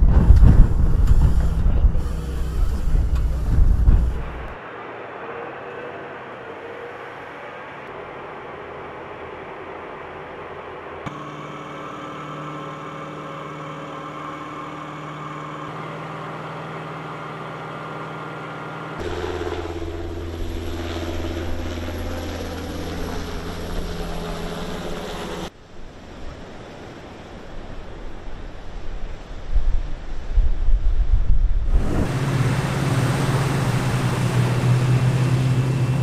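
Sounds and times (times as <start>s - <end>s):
deep engine hum: 0.0s - 4.6s, 11.1s - 25.5s, 31.7s - 36.0s
diesel engine running: 0.0s - 4.6s, 11.1s - 25.5s, 31.7s - 36.0s
wind: 0.0s - 36.0s
surf: 31.7s - 36.0s.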